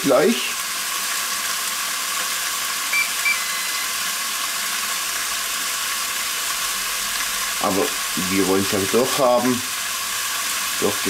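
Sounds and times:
steaks sizzling: 0:00.0 - 0:11.0
grill beeps and tone: 0:02.9 - 0:04.1.

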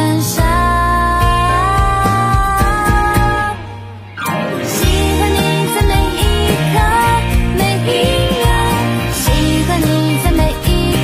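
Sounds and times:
pop love song: 0:00.0 - 0:11.0.

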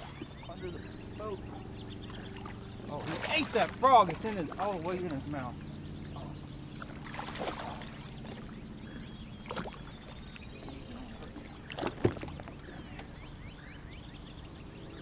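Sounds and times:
steady low hum: 0:00.0 - 0:15.0
fish splashing at water surface: 0:07.0 - 0:08.5.

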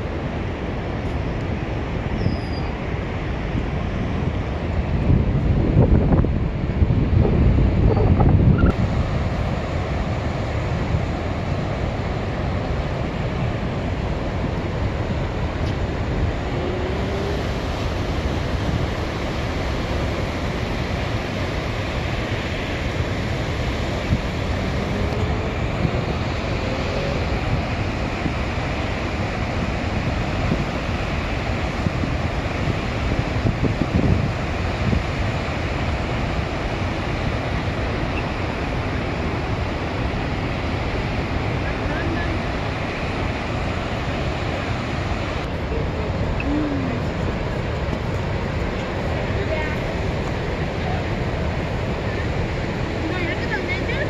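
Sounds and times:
wind buffeting microphone: 0:00.0 - 0:36.6
waterfall roaring: 0:00.0 - 0:54.0
rapids rushing: 0:08.7 - 0:54.0.

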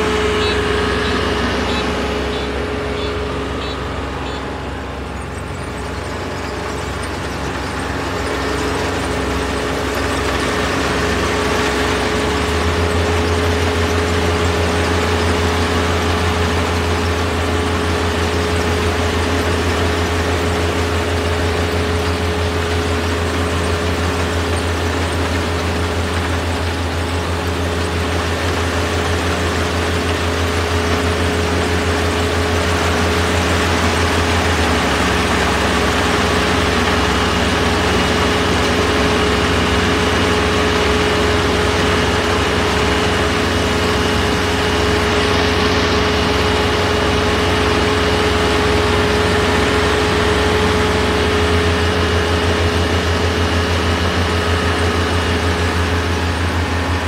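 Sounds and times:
steady whine: 0:00.0 - 0:18.0
combine harvester engine drone: 0:00.0 - 0:57.0.

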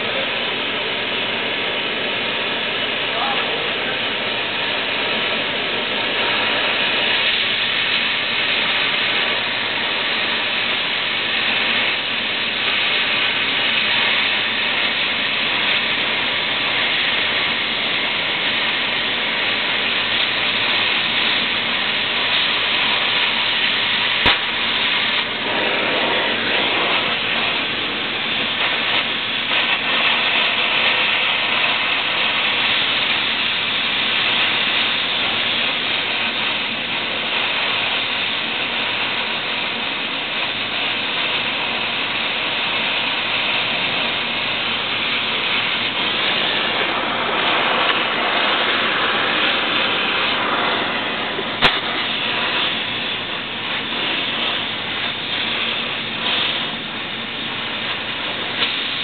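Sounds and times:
loud steady hissing: 0:00.0 - 0:59.0.

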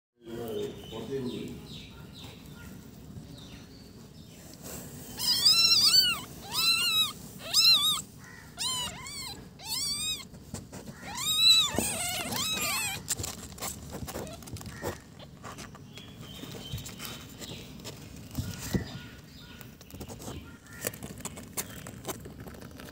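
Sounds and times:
kittens mewing: 0:05.0 - 0:15.6.

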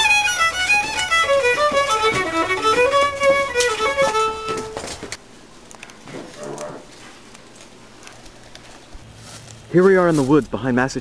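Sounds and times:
solo violin tune: 0:00.0 - 0:04.9.

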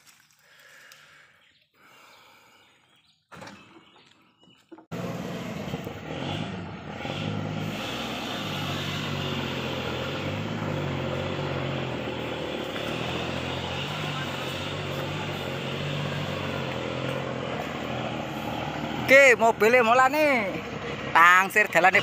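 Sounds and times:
truck engine running hard: 0:04.9 - 0:22.0.

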